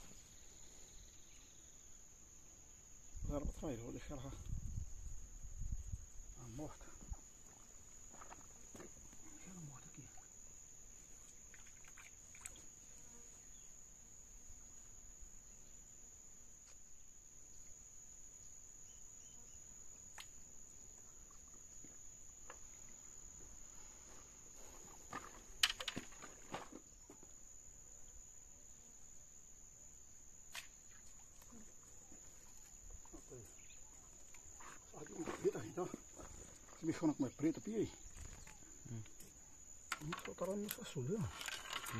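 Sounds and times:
insects trilling: 0.0s - 41.9s.

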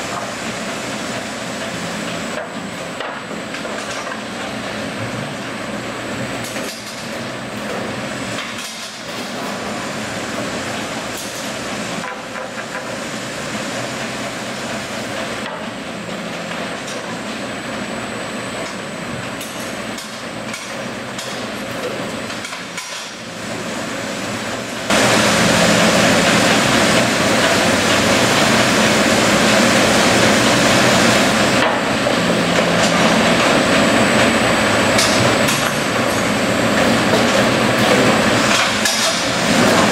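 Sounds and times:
saw line machine noise: 24.9s - 38.6s.

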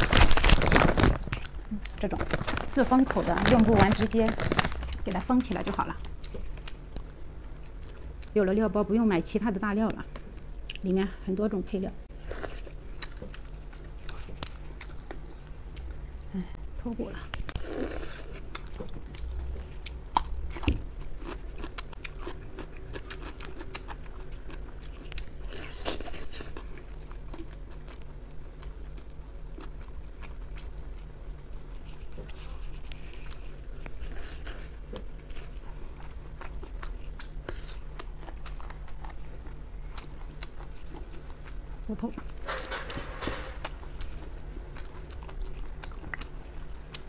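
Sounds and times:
chewing meat and cartilage: 17.4s - 42.4s, 43.6s - 47.0s.

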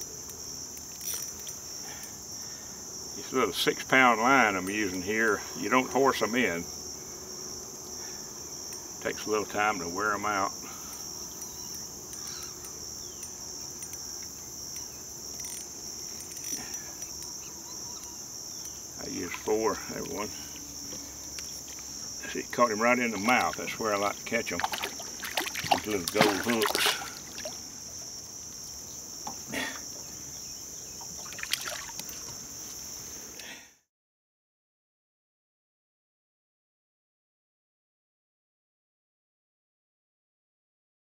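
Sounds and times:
insects shrilling: 0.0s - 33.6s
fish splashing at water surface: 24.5s - 27.6s, 31.1s - 32.1s.

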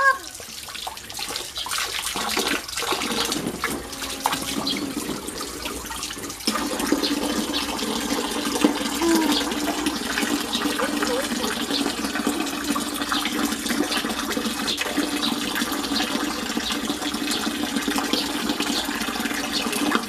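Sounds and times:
splashes of child wading: 0.0s - 12.4s
water pouring from hose: 0.0s - 20.0s.

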